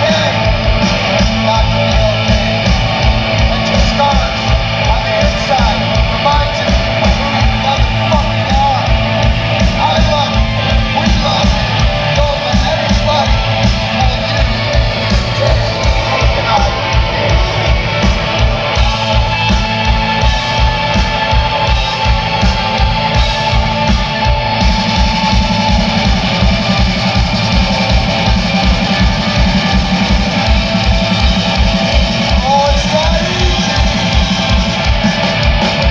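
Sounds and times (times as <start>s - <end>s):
singer's vocals: 0.0s - 23.6s, 32.0s - 34.6s
live rock band playing: 0.0s - 35.9s.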